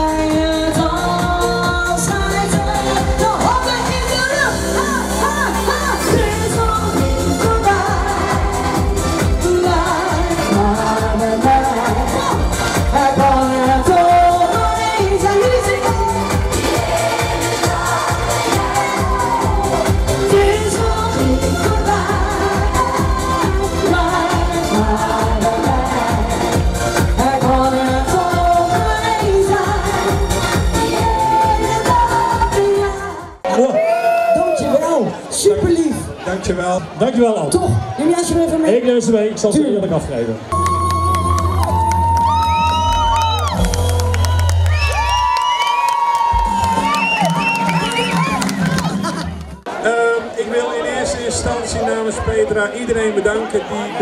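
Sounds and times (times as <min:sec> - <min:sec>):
woman singing into microphone: 0:00.0 - 0:33.5
amplified pop band with beat: 0:00.0 - 0:34.8.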